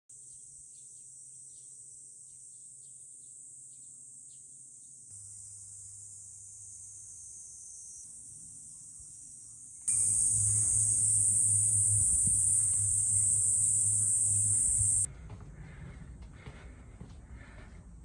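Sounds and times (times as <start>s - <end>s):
high-pitched insect chorus: 0.7s - 15.1s.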